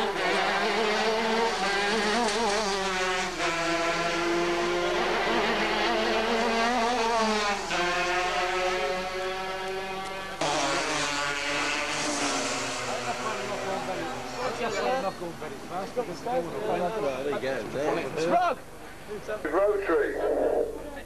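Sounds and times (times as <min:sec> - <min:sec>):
kart engines screaming at high revs: 0:00.0 - 0:14.5.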